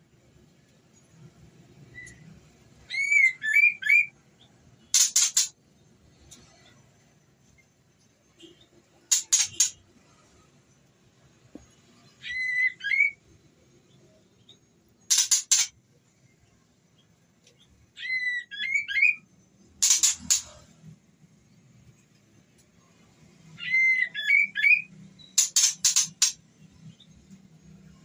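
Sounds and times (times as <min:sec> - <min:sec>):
bird whistled phrases: 0:02.9 - 0:04.1, 0:12.2 - 0:13.2, 0:18.0 - 0:19.2, 0:23.6 - 0:24.9
bird harsh rapid chattering: 0:04.9 - 0:05.5, 0:09.1 - 0:09.8, 0:15.1 - 0:15.8, 0:19.8 - 0:20.6, 0:25.4 - 0:26.4.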